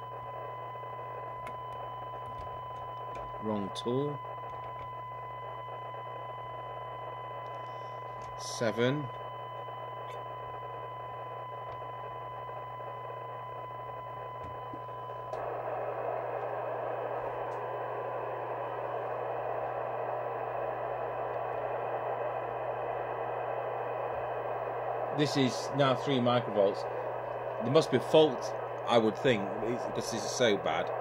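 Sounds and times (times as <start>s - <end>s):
low hum: 0.0s - 31.0s
radio hiss: 0.0s - 31.0s
steady test tone: 0.0s - 31.0s.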